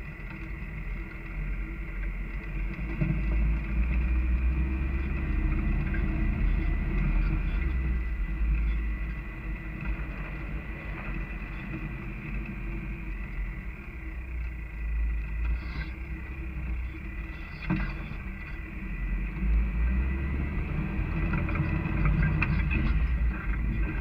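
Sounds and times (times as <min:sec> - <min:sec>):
engine and tyres rumbling: 0:00.0 - 0:24.0.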